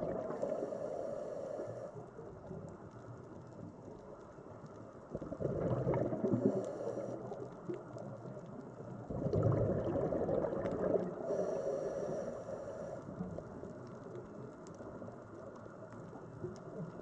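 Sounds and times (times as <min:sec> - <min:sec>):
water sloshing and gurgling: 0:00.0 - 0:01.2, 0:05.0 - 0:11.5.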